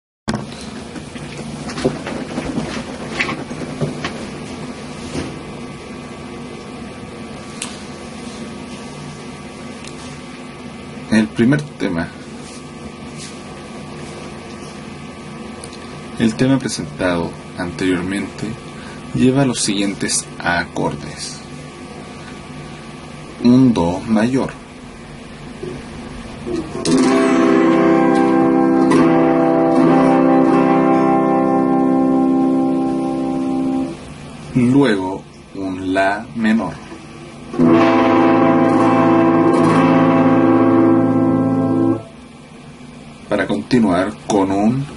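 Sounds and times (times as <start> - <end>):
room hum and hiss: 0.3 - 44.9
guitar strumming: 26.4 - 34.0, 37.5 - 42.2.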